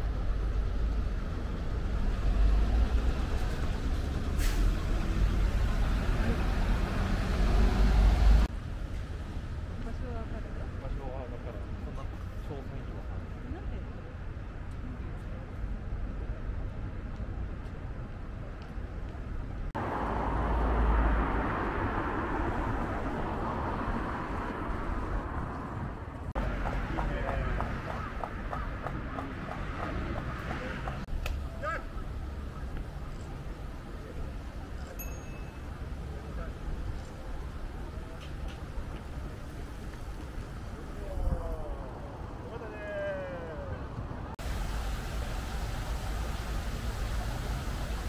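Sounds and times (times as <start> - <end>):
road traffic rumble: 0.0 - 48.0
short hiss of air: 4.4 - 4.8.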